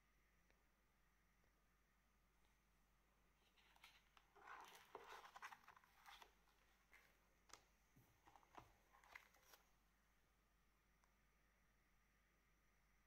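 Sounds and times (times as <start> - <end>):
pages rustling: 3.4 - 9.8.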